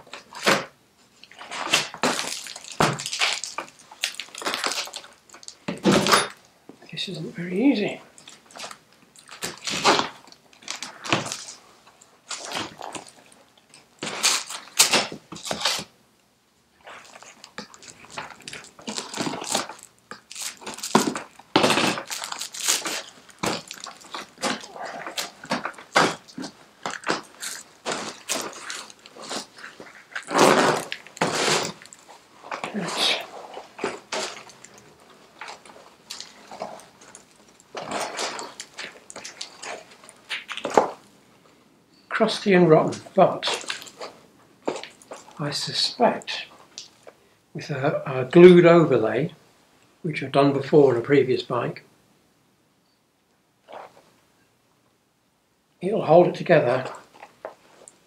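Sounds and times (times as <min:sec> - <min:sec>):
seat cover tearing: 0:20.4 - 0:31.8
foam padding pulled free: 0:27.1 - 0:31.8.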